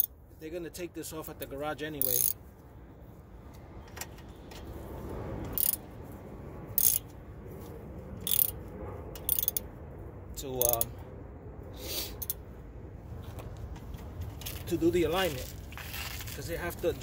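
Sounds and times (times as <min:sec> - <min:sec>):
hand ratchet clicking: 0:02.0 - 0:02.4, 0:05.5 - 0:05.8, 0:06.8 - 0:07.1, 0:08.2 - 0:08.6, 0:09.2 - 0:09.6, 0:10.6 - 0:10.9.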